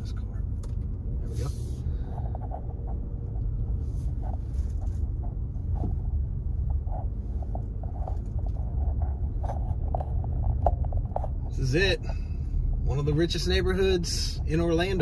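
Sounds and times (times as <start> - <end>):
car cabin rumble: 0.0 - 15.0.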